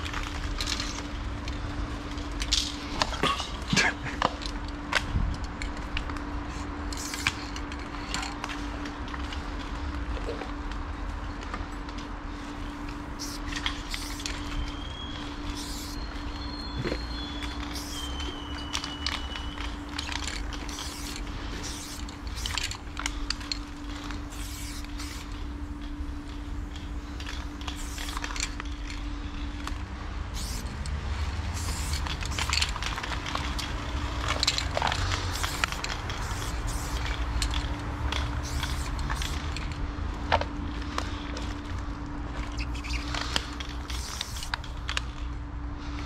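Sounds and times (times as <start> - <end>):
steady low rumble: 0.0 - 46.0
spray paint can hissing: 6.9 - 7.5, 12.6 - 25.5, 26.3 - 28.6, 30.3 - 39.7, 42.4 - 44.9.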